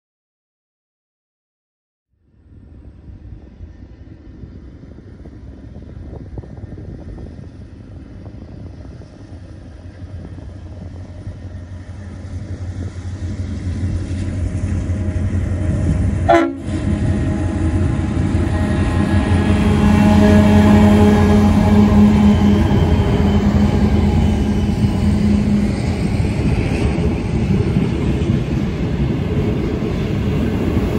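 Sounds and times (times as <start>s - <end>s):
diesel locomotive engine rumble: 2.3s - 30.9s
train horn toot: 15.8s - 26.2s.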